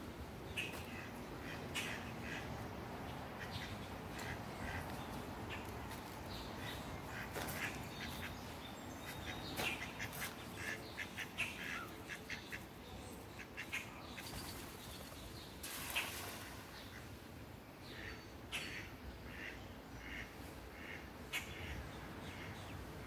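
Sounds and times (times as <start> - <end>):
ducks quacking: 0.6 - 2.6, 3.4 - 5.7, 6.6 - 14.3, 18.0 - 22.6.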